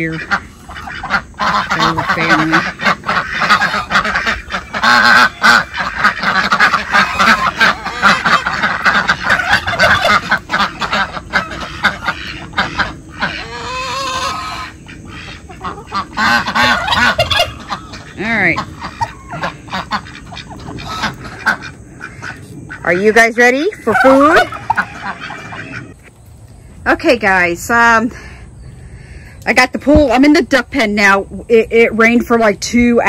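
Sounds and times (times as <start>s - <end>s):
ducks quacking: 0.0s - 26.1s
geese honking: 0.0s - 26.1s.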